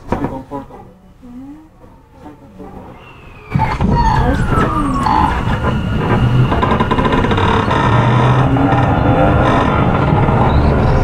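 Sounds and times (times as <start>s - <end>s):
wheels rumbling on rail: 0.0s - 11.0s
train motor tones: 2.9s - 11.0s.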